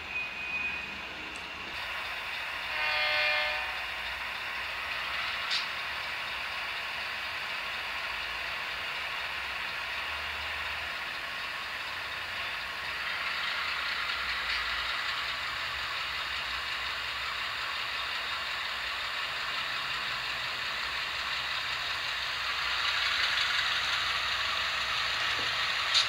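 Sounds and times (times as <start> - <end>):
diesel engine sound from small speaker: 0.0 - 26.0
model train air horn: 2.5 - 4.2.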